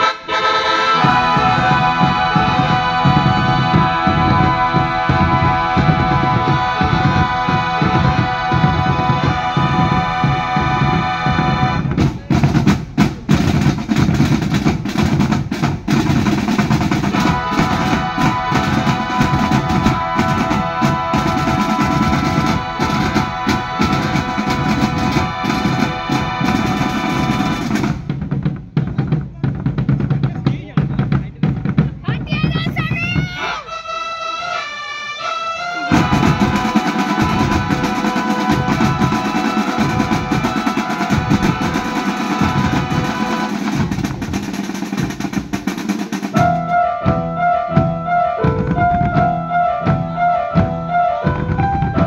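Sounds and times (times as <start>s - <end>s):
sustained melody line: 0.0s - 12.0s, 17.0s - 27.9s
snare and bass drums: 1.0s - 33.7s, 35.8s - 52.0s.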